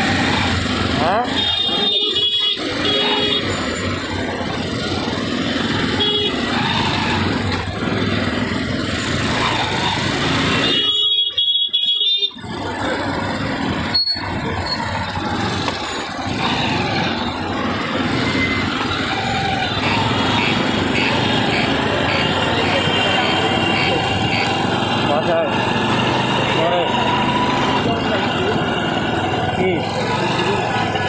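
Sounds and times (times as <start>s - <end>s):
road traffic noise: 0.0s - 31.0s.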